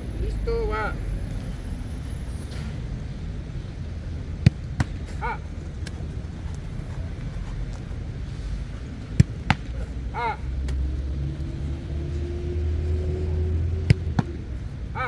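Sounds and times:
low vehicle rumble: 0.0 - 15.0
football kicked and caught: 9.1 - 9.7.

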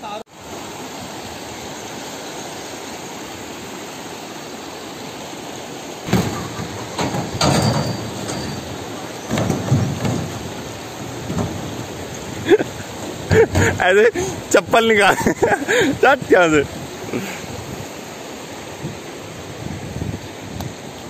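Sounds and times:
rushing river water: 0.0 - 21.0
footsteps on iron bridge deck: 6.1 - 14.5.

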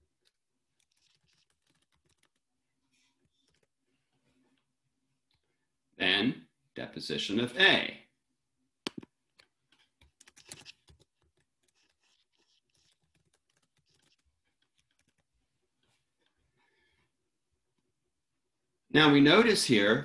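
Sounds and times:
typing on computer keyboard: 0.2 - 2.4, 3.3 - 3.7, 10.0 - 15.3.

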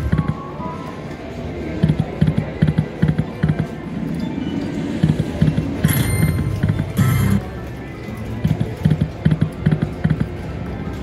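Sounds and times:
slot machine spin sounds and music: 5.2 - 7.5.

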